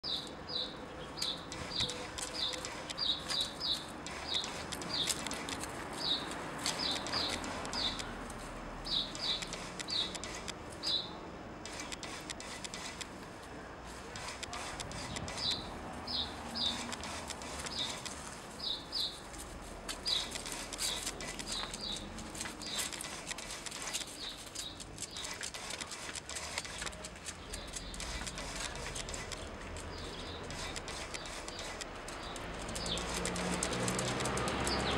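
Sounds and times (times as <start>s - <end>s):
small bird chirping: 0.0s - 8.1s, 8.9s - 11.2s, 15.0s - 19.2s, 20.0s - 25.7s, 27.4s - 34.9s
light clicks and taps: 19.3s - 34.9s.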